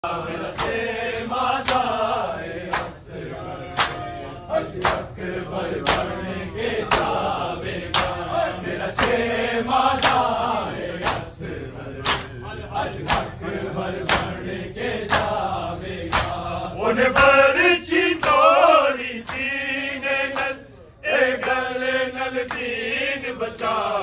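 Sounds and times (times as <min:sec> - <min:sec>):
men chanting in unison: 0:00.0 - 0:24.0
chest-beating slaps: 0:00.4 - 0:00.9, 0:02.7 - 0:03.0, 0:03.7 - 0:04.0, 0:04.8 - 0:05.2, 0:05.8 - 0:06.1, 0:06.8 - 0:07.2, 0:07.9 - 0:08.2, 0:09.0 - 0:09.2, 0:11.0 - 0:11.3, 0:12.0 - 0:12.3, 0:13.0 - 0:13.4, 0:14.1 - 0:14.4, 0:15.1 - 0:15.4, 0:16.1 - 0:16.4, 0:19.2 - 0:19.5.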